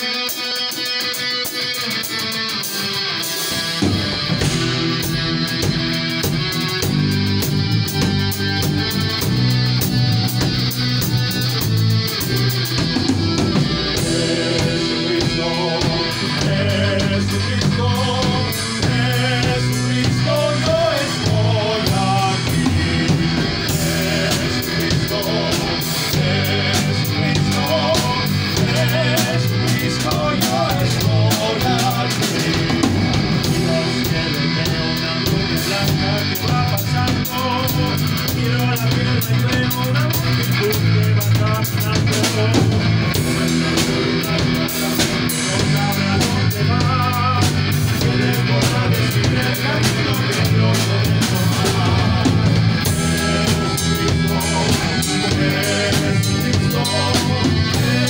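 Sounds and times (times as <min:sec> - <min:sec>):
rock band playing: 0:00.0 - 0:58.0
person singing into microphone: 0:13.9 - 0:43.1, 0:43.7 - 0:58.0.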